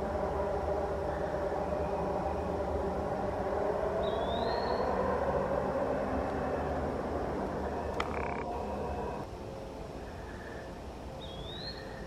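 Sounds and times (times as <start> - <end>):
frogs croaking: 0.0 - 12.0
whistled bird note: 4.0 - 5.0, 11.2 - 12.0.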